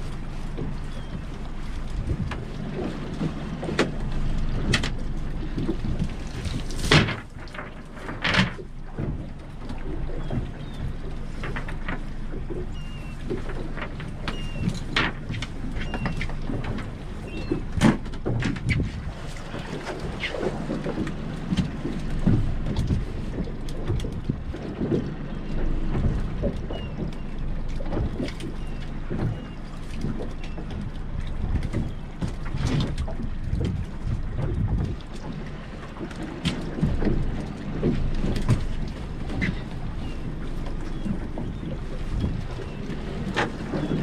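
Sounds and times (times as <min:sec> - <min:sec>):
boat idling hum: 0:00.0 - 0:44.0
faint bird calls: 0:00.8 - 0:01.3, 0:12.6 - 0:14.8, 0:15.8 - 0:16.3, 0:17.2 - 0:17.7, 0:26.5 - 0:27.5, 0:28.5 - 0:30.8, 0:39.4 - 0:44.0
knocks and splashes of net: 0:04.6 - 0:09.2.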